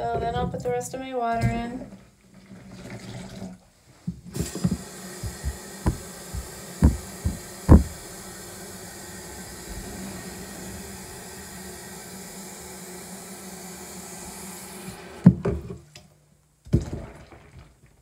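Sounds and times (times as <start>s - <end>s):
tap water running into a pitcher: 1.8s - 3.7s, 4.4s - 15.7s
sharp knocks: 4.4s - 8.1s.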